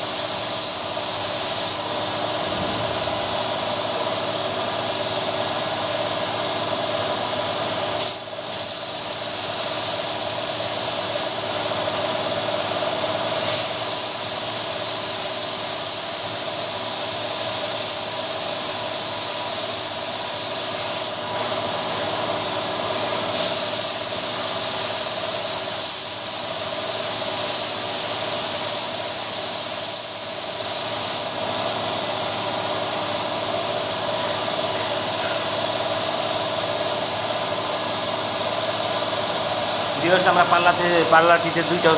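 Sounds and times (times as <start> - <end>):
spray gun air hiss: 0.0 - 2.6, 8.0 - 11.5, 13.3 - 21.3, 23.2 - 31.8
air compressor running: 0.0 - 41.9.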